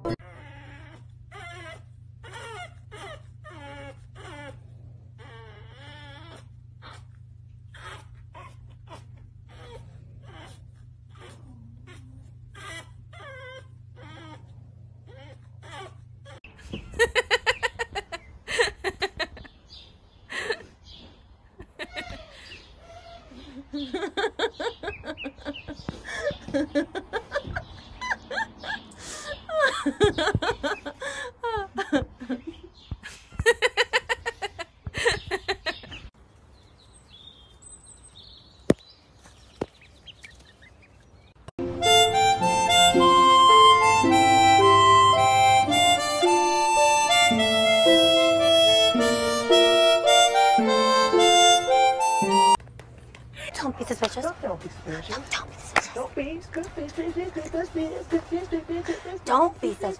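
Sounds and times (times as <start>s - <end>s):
puppy whimpering: 0.0s - 16.4s, 21.8s - 23.8s
person laughing: 16.7s - 19.6s, 20.3s - 20.8s, 21.6s - 22.6s, 23.4s - 36.1s
ducklings peeping: 22.1s - 26.5s, 34.4s - 52.6s.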